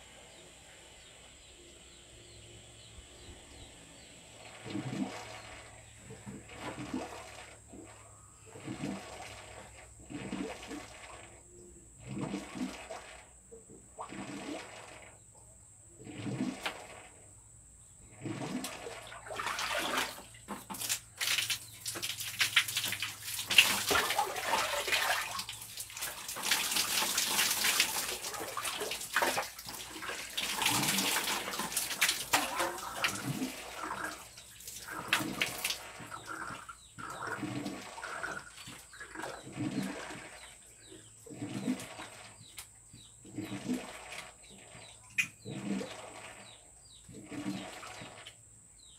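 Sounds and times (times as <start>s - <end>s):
bath water splashing and pouring: 6.2s - 11.3s, 18.1s - 42.5s, 43.3s - 46.6s.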